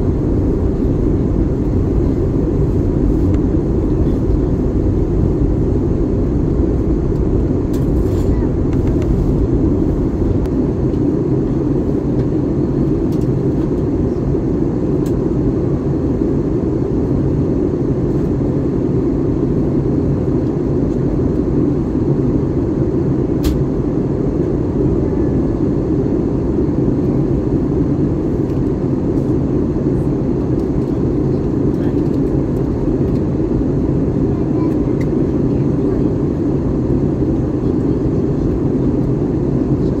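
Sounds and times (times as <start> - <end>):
airliner cabin rumble: 0.0 - 40.0.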